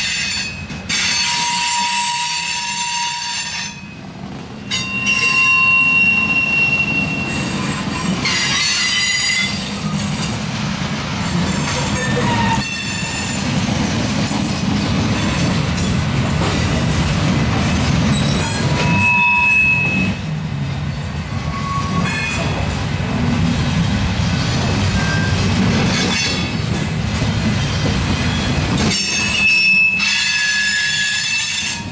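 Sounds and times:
train wheels rumbling on rails: 0.0s - 31.9s
high-pitched wheel squeals: 4.7s - 9.7s, 11.8s - 13.4s, 18.1s - 20.3s, 24.9s - 25.4s, 27.7s - 31.9s.

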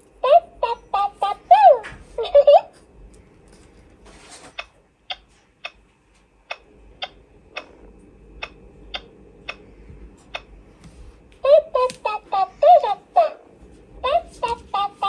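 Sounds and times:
toy making sharp clicks: 11.7s - 12.2s.

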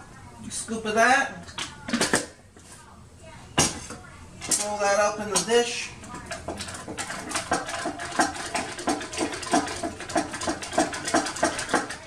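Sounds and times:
spoon stirring in a cup: 4.0s - 12.0s.

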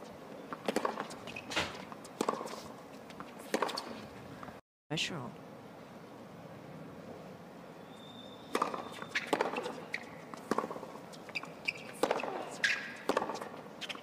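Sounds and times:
ball bouncing on hard court: 0.6s - 2.5s, 8.5s - 14.0s
racket striking tennis ball: 0.6s - 2.7s, 3.4s - 4.0s, 8.5s - 14.0s.

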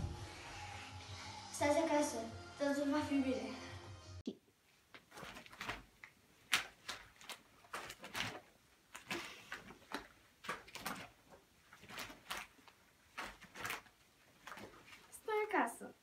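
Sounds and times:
rubber exercise band swishing: 4.8s - 15.5s.

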